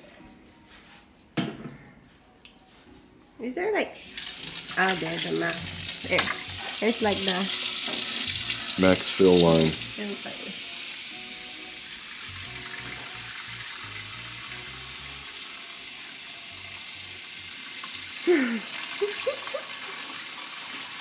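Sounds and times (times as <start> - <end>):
water running into plastic tank: 4.1 - 10.0.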